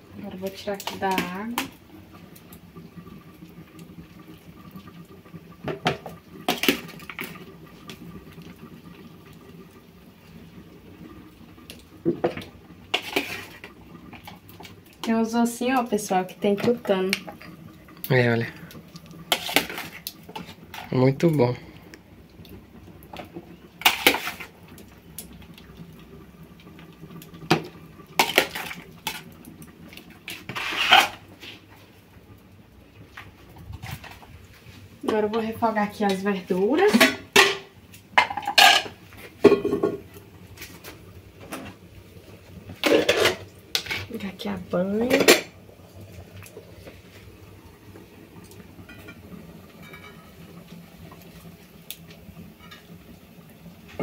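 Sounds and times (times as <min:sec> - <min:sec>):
water dripping and splashing: 0:00.4 - 0:30.6
pots and utensils clattering: 0:05.6 - 0:07.5, 0:12.0 - 0:15.2, 0:19.3 - 0:21.0, 0:23.1 - 0:24.6, 0:27.5 - 0:29.3, 0:30.3 - 0:31.3, 0:36.1 - 0:41.8, 0:42.7 - 0:44.3, 0:44.9 - 0:45.6, 0:48.8 - 0:49.2, 0:49.8 - 0:50.4
knocks against a pot: 0:39.4 - 0:40.0.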